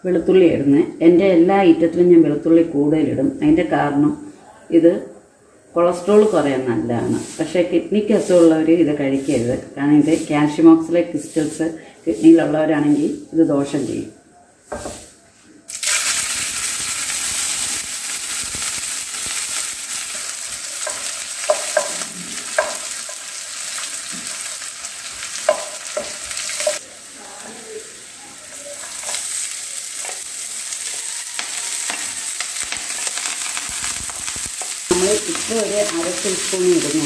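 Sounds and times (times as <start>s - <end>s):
garlic sizzling in hot oil: 6.0s - 9.4s, 15.7s - 37.0s
spatula tapping and scraping pan: 20.8s - 23.3s, 25.3s - 26.8s.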